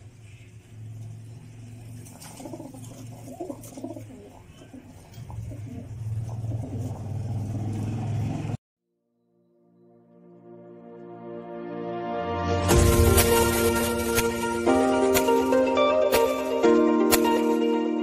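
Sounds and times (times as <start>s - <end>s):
low hum: 0.0s - 3.7s
pigeons cooing: 1.8s - 8.5s
soft music: 9.2s - 18.0s.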